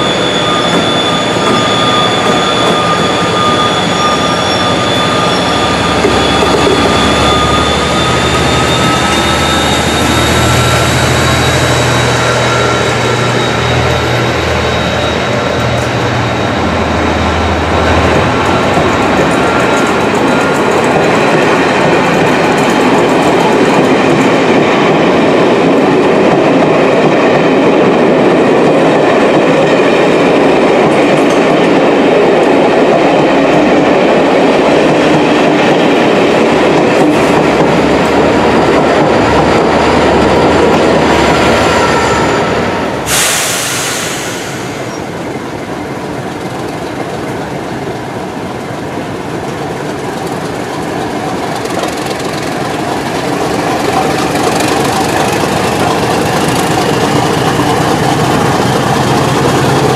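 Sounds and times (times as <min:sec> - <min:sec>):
train interior running noise: 0:00.0 - 0:59.9
train wheels on rail clickety-clack: 0:00.0 - 0:59.9
air hiss: 0:43.0 - 0:45.0.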